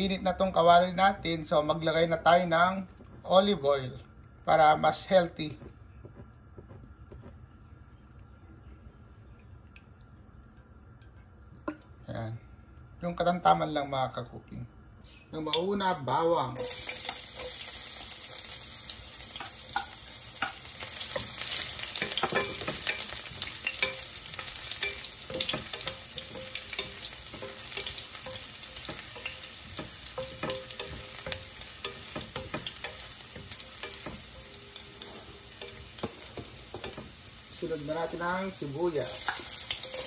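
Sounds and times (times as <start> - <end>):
garlic sizzling in oil: 1.4 - 14.0, 15.3 - 40.0
wooden spoon scraping and tapping pan: 5.4 - 7.4, 19.3 - 37.2, 39.0 - 40.0.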